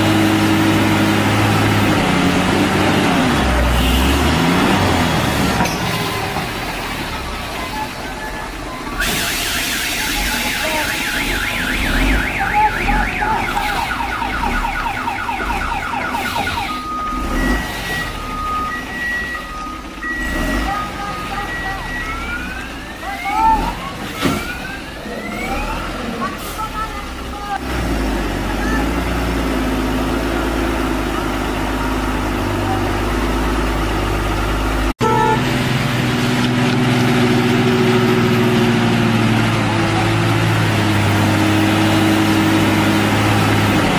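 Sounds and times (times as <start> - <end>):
truck diesel engine drone: 0.0 - 43.9
truck horn toot: 3.5 - 4.9, 35.0 - 35.7
two-tone siren: 7.7 - 25.9
electronic siren warbling: 8.7 - 25.9.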